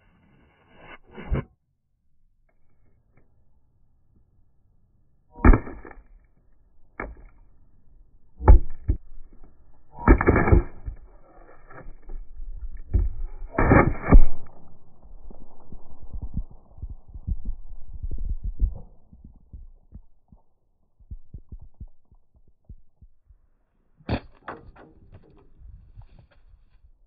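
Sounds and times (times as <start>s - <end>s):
low rumbling tail: 12.1s - 23.4s.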